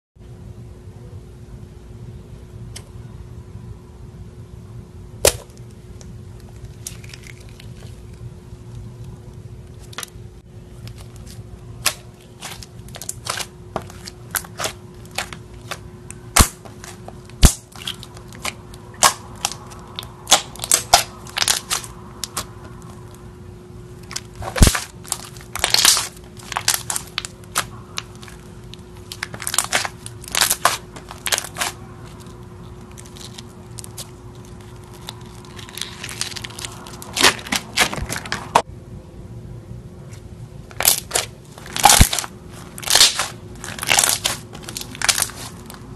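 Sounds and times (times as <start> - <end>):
slime popping and crackling: 6.4 - 8.2, 10.9 - 23.2, 24.0 - 38.3, 40.8 - 45.8.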